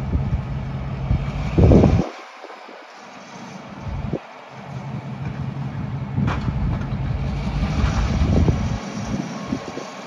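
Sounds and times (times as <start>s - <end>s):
wind buffeting microphone: 0.0s - 2.9s, 4.9s - 10.0s
diesel locomotive engine running: 0.0s - 10.0s.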